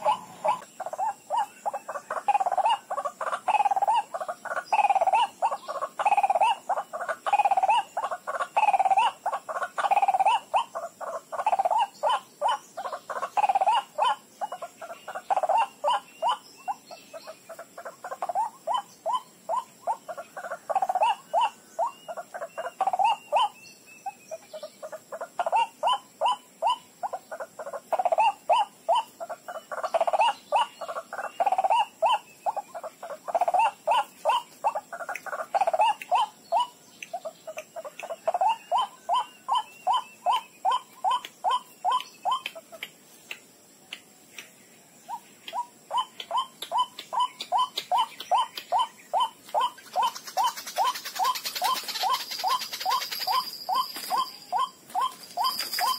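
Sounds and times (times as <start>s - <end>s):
waterhen calling: 0.0s - 16.4s, 45.5s - 55.9s.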